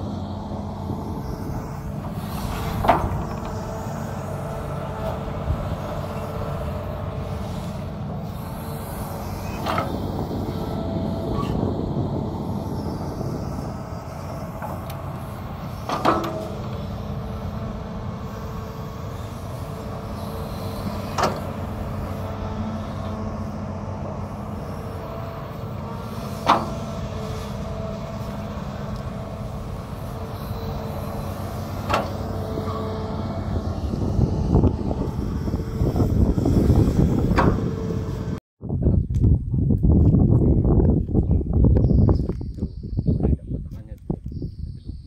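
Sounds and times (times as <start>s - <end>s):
excavator diesel engine running: 0.0s - 38.4s
excavator bucket clanking: 15.9s - 16.7s.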